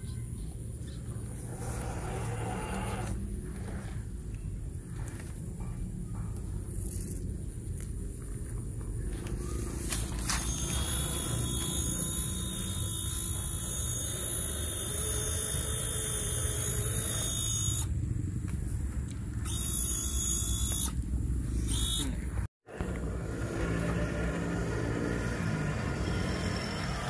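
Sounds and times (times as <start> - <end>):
small electric motors whirring: 9.4 - 18.0, 19.4 - 22.4, 23.5 - 27.0.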